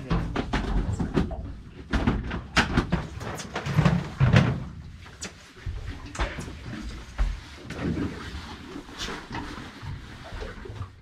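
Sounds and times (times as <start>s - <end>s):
scuba gear clattering on metal deck: 0.0s - 4.8s.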